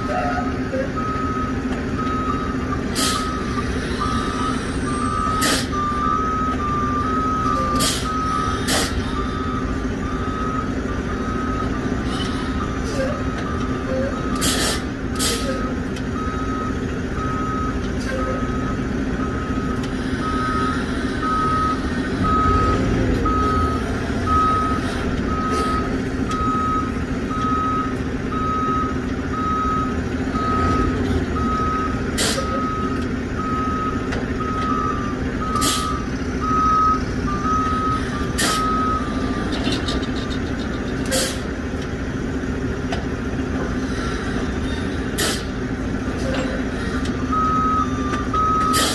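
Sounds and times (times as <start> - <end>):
diesel truck engine running: 0.0 - 48.9
truck reverse alarm beeping: 0.0 - 48.9
air brake bursts: 2.9 - 5.8, 7.6 - 9.3, 12.0 - 15.8, 32.1 - 32.7, 35.5 - 36.1, 37.9 - 39.8, 41.0 - 41.6, 43.7 - 48.0, 48.6 - 48.9.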